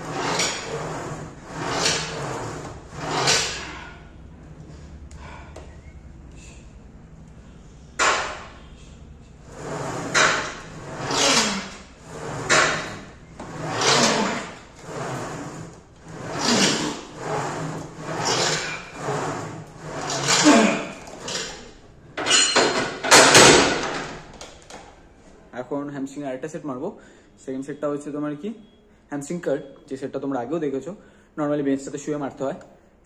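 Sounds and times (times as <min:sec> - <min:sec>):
leg press sled swishing: 0:00.0 - 0:04.1, 0:09.4 - 0:21.7.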